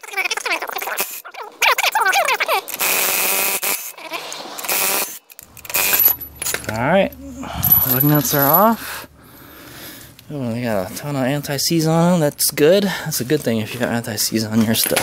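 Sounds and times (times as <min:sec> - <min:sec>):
impact wrench bursts: 0:02.7 - 0:03.9, 0:04.6 - 0:06.8
metal lug nuts clinking: 0:05.4 - 0:09.0.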